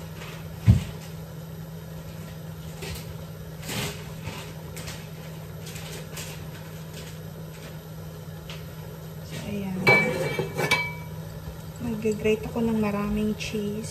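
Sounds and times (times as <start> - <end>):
steady low hum: 0.0 - 13.9
kitchen knocks and rustles: 0.1 - 1.2, 9.3 - 11.1.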